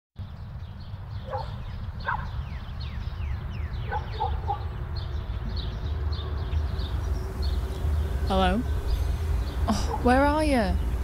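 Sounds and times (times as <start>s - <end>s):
birds chirping: 0.2s - 11.0s
wind buffeting microphone: 0.2s - 11.0s
dog barking: 1.2s - 2.4s, 3.9s - 4.7s.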